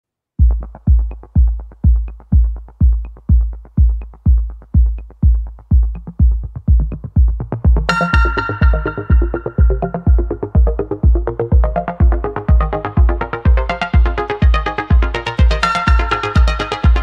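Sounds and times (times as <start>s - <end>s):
heavy kick drum: 0.4s - 17.0s
hi-hat ticks: 0.4s - 17.0s
bright synth chord: 7.9s - 10.8s.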